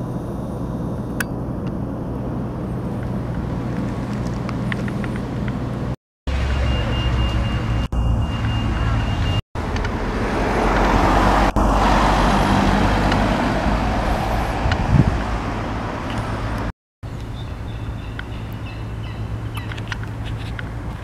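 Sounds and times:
low outdoor hum: 0.0s - 6.5s
car passing by: 6.3s - 16.7s.

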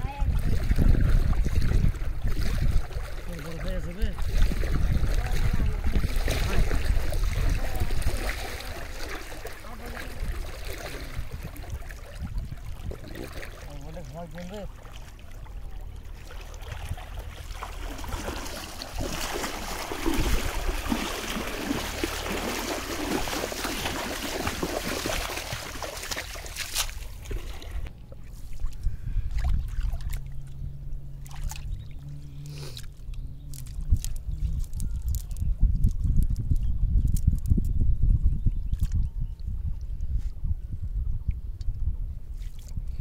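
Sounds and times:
water splashing and sloshing: 0.0s - 37.5s, 38.6s - 40.5s, 41.2s - 43.0s
wet net clicks: 32.5s - 36.4s.

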